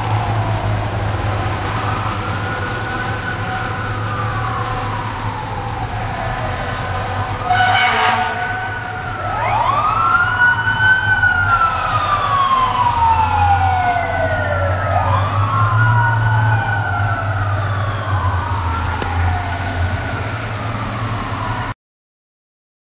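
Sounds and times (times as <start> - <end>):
sirens wailing: 0.0 - 21.8
truck engines rumbling: 0.0 - 21.8
short horn blast: 7.5 - 8.5.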